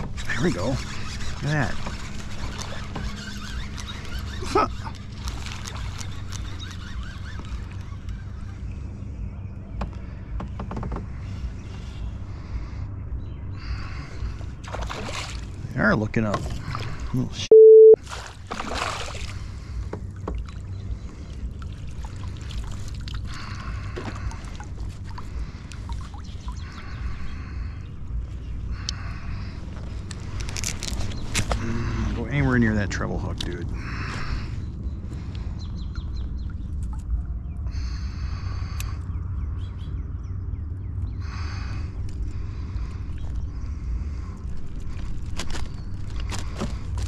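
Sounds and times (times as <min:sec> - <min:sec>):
low steady rumble: 0:00.0 - 0:47.0
fishing reel cranking: 0:00.2 - 0:05.0
small water splashes and drips: 0:04.9 - 0:06.7, 0:14.6 - 0:15.7, 0:18.0 - 0:26.8
lure splashing in water: 0:14.6 - 0:15.6, 0:18.0 - 0:19.5.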